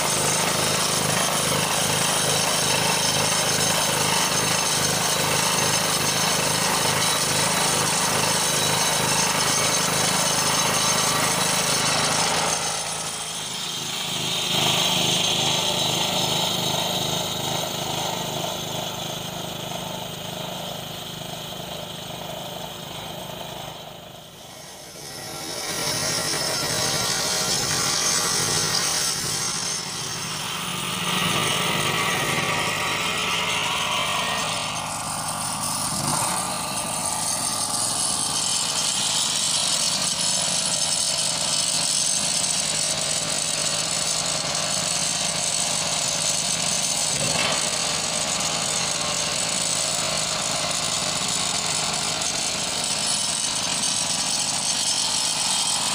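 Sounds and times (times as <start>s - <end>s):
machine engine running: 24.0s - 39.0s.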